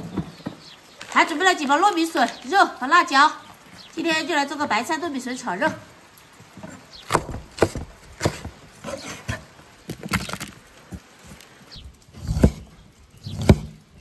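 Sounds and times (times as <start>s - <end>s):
cleaver chopping on wooden board: 7.1s - 8.5s.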